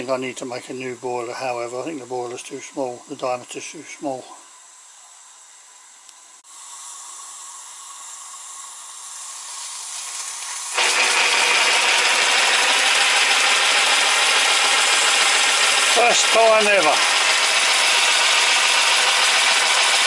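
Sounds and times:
steam hissing: 6.4 - 20.0.

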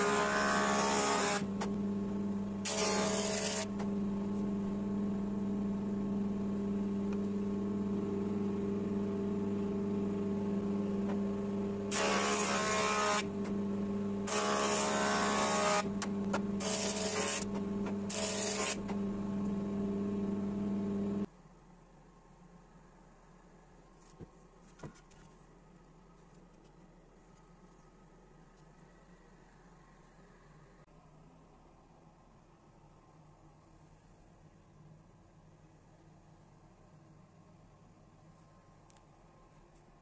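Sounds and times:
cutterhead planing wooden board: 0.0 - 1.7, 2.6 - 3.9, 11.9 - 13.5, 14.3 - 18.9
jointer motor hum: 0.0 - 21.2.

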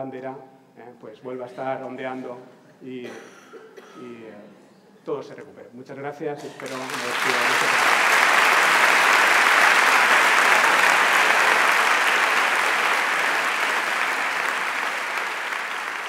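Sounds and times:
audience applauding: 6.6 - 16.0.

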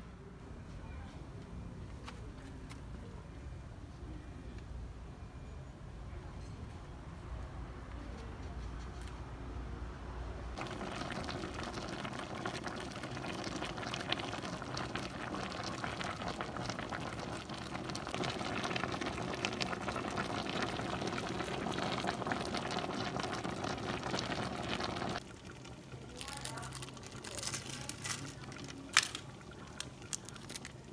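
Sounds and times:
soup bubbling on the boil: 10.6 - 30.9.

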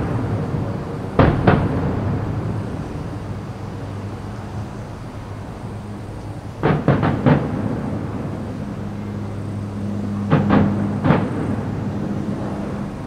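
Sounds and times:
firework shells bursting: 0.0 - 4.1, 6.2 - 13.0.

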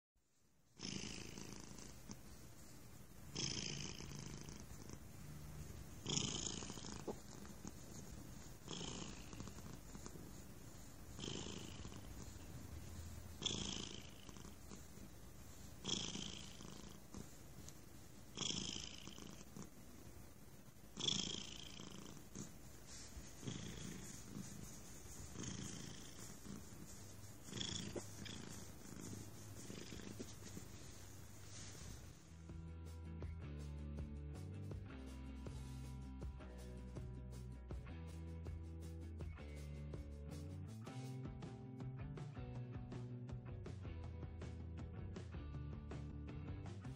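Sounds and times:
cat purring loudly: 0.8 - 32.2.

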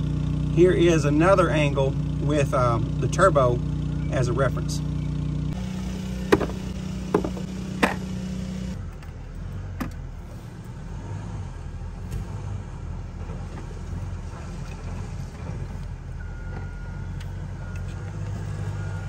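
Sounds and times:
generator engine droning: 0.0 - 11.0, 11.6 - 19.0.

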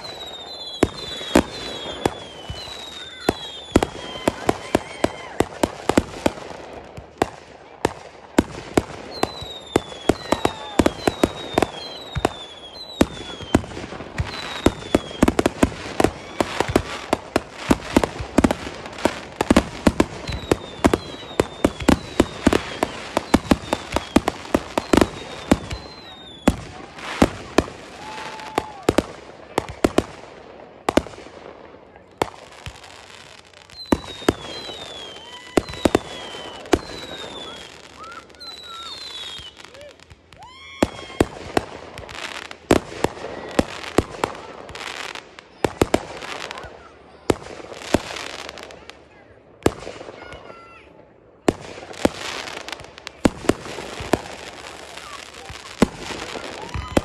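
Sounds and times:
firework whistles falling in pitch: 0.0 - 5.2, 9.1 - 15.4, 20.2 - 26.5, 33.7 - 39.8, 56.5 - 57.0
firework bangs: 0.0 - 49.0, 51.4 - 57.0.

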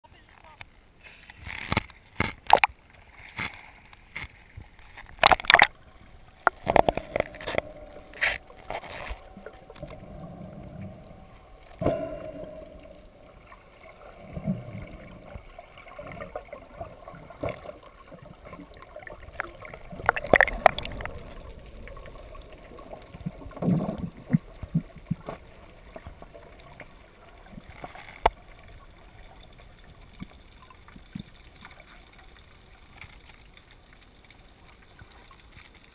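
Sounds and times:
underwater gurgling: 0.9 - 35.9
sea water splashing: 1.2 - 35.9.

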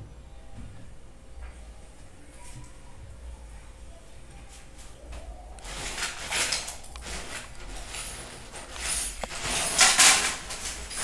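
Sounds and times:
furniture parts scraping and sliding: 5.6 - 11.0.

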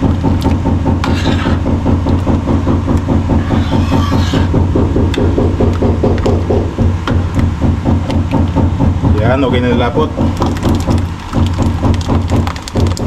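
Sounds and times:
motor humming: 0.0 - 9.4
metal ladle scraping a pan: 1.0 - 1.6, 3.4 - 4.5.

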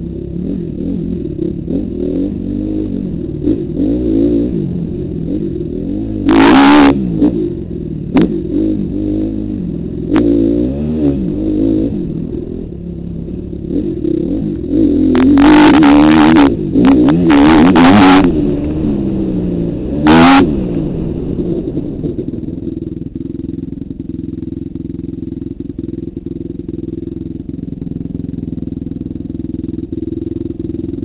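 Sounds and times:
dirt bike engine revving: 0.0 - 22.8.

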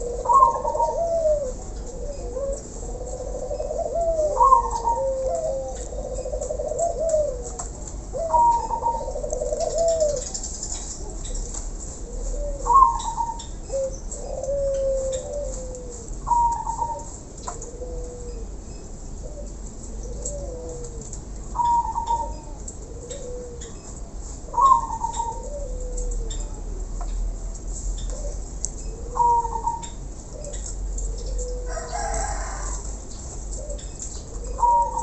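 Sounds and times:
doves cooing: 0.0 - 35.0.

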